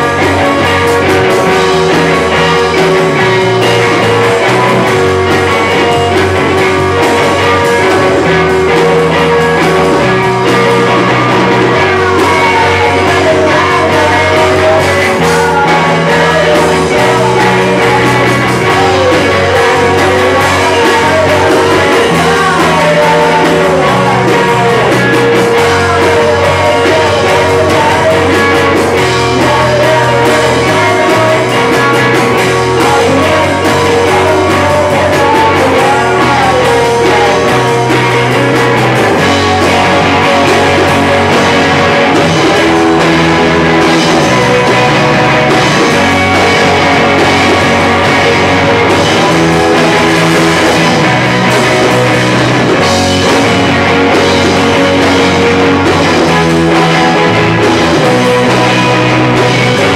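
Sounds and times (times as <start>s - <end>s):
bass guitar notes: 0.0s - 59.9s
drumming: 0.0s - 59.9s
rock band playing: 0.0s - 59.9s.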